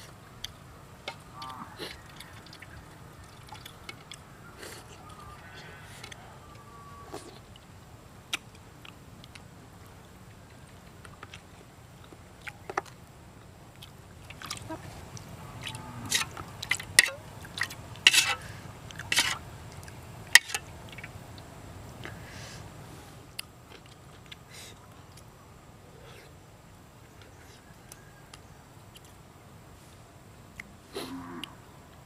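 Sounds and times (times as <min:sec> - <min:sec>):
chewing and mouth sounds: 0:10.3 - 0:17.8, 0:23.4 - 0:25.3
metal spoon scraping in wok: 0:18.0 - 0:18.5, 0:19.1 - 0:19.4.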